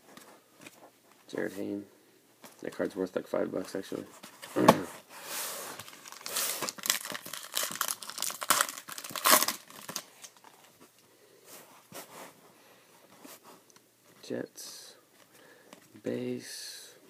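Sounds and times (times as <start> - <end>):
foil wrapper tearing and crinkling: 5.8 - 10.5.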